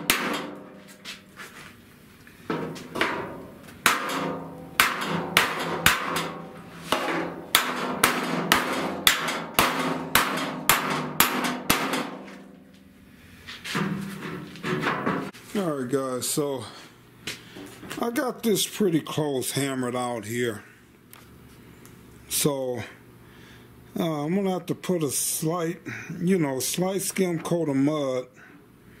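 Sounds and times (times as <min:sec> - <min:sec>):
hammer blows on sheet steel: 0:00.0 - 0:01.2, 0:02.5 - 0:12.6.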